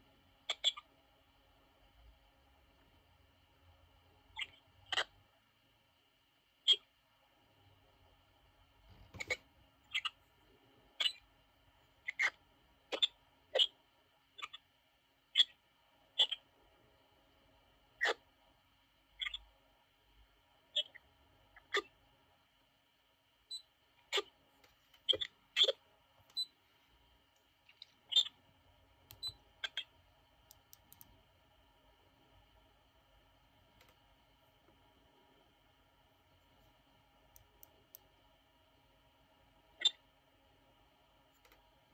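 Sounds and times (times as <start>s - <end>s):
tuning knob ticks: 30.4s - 31.2s, 37.3s - 38.1s.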